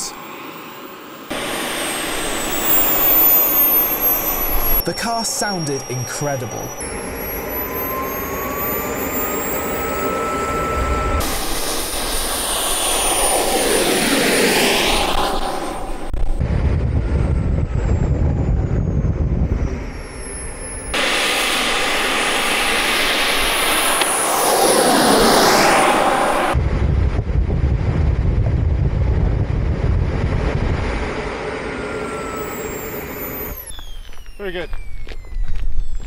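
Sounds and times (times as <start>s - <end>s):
jet car rushing past: 0.0s - 36.0s
jet engine high-pitched whine: 0.0s - 36.0s.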